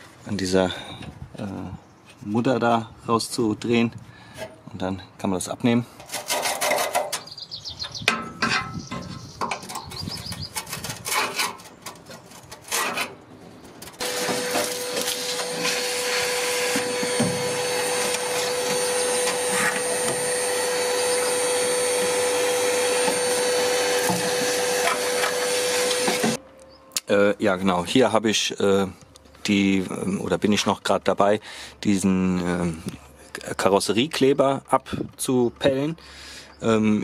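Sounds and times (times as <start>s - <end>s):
clicks and scraping on sheet metal: 5.9s - 7.3s, 8.0s - 15.7s
heat gun blowing: 14.0s - 26.4s.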